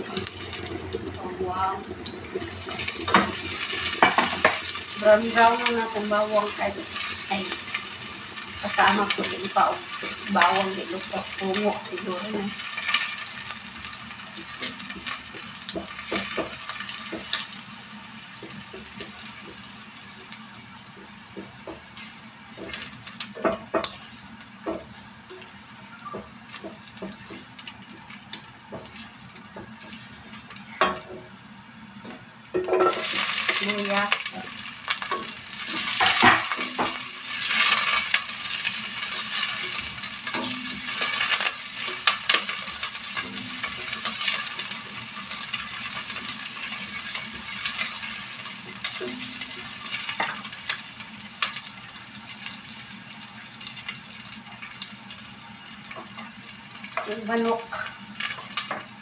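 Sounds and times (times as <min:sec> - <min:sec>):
garlic and ginger sizzling in oil: 0:00.0 - 0:59.0
spatula scraping and tapping pan: 0:02.7 - 0:04.7, 0:14.6 - 0:17.5.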